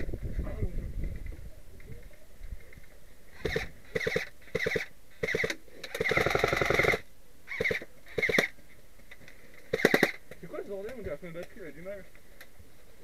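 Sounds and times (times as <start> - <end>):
airsoft rifle bursts: 3.4 - 8.6, 9.7 - 10.3.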